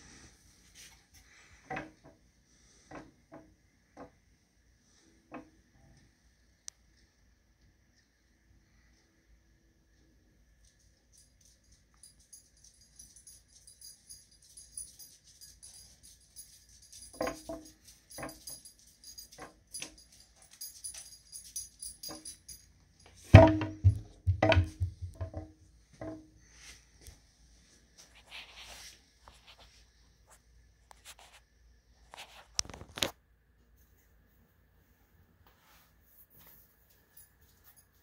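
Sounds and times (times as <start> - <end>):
light pulsing jingling: 10.8 - 25.4
knocks and thuds: 23.3 - 26.2.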